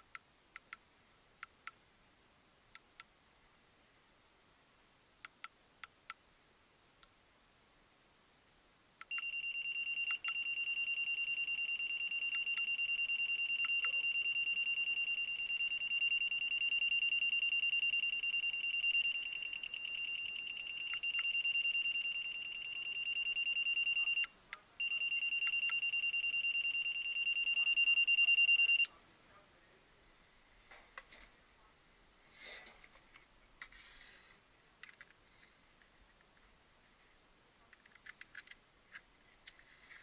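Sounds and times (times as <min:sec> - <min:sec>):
high beep tone: 0:09.1 - 0:28.9.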